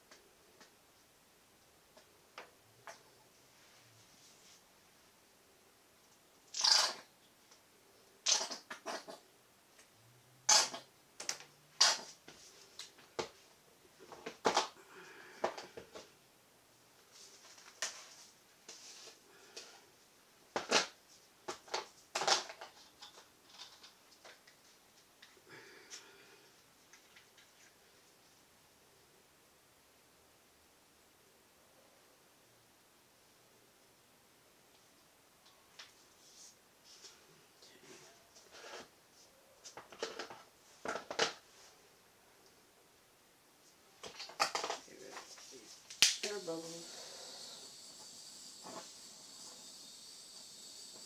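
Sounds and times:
plastic cups rustling and knocking: 0:08.2 - 0:09.3, 0:14.0 - 0:16.2, 0:20.5 - 0:25.4, 0:39.6 - 0:41.7, 0:44.0 - 0:45.9.

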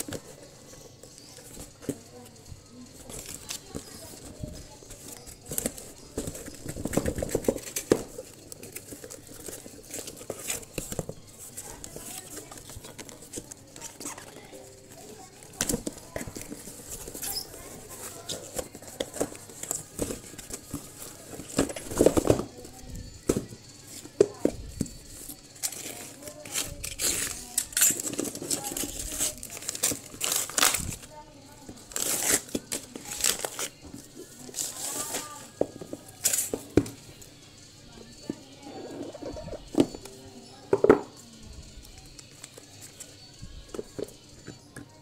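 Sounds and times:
cardboard packaging rustling: 0:03.0 - 0:24.9, 0:25.6 - 0:31.2, 0:31.8 - 0:36.8.

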